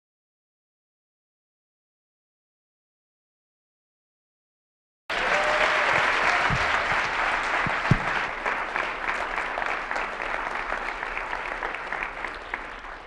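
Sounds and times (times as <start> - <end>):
audience applauding: 5.1 - 13.0
low thumps: 7.7 - 8.2.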